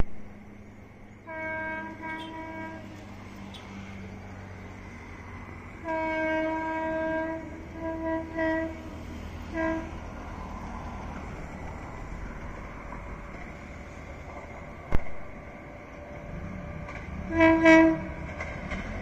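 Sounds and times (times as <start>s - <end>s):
train horn: 1.2s - 3.7s, 5.8s - 10.1s, 16.9s - 18.5s.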